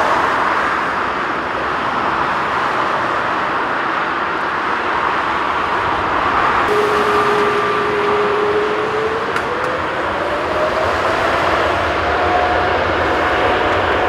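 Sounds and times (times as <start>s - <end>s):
jet engines rushing: 6.2s - 14.0s
steady whine: 6.7s - 14.0s.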